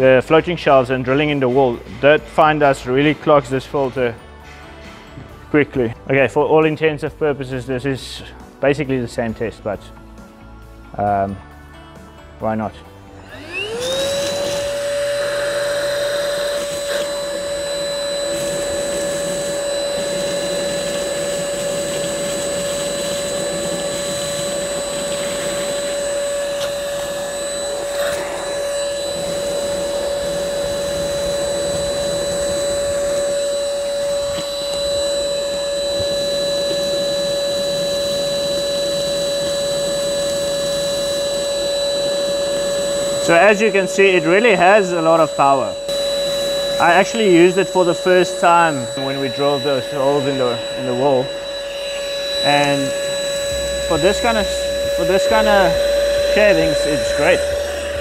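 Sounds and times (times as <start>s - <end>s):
handheld vacuum cleaner motor whine: 13.1s - 58.0s.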